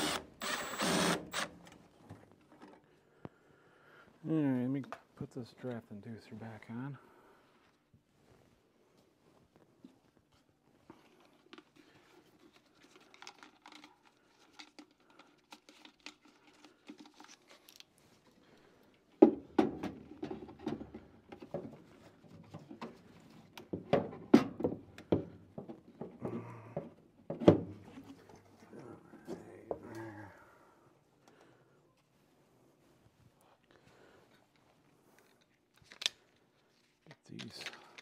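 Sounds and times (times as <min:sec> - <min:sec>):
light clicks and rustling: 0:34.3 - 0:38.0.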